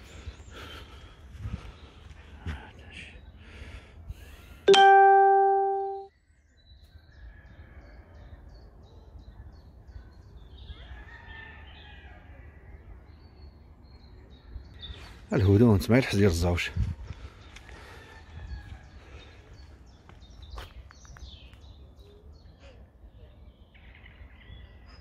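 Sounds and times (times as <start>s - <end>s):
loud bell-like ding: 4.7s - 6.1s.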